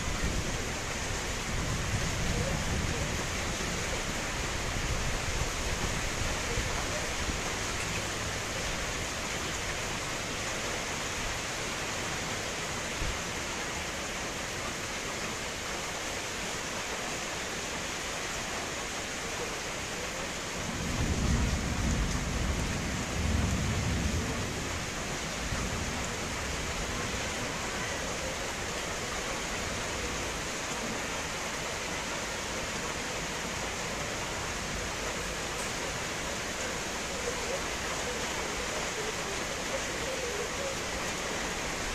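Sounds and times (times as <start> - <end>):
steady rain falling: 0.0 - 41.9
thunder rumbling: 20.7 - 24.8.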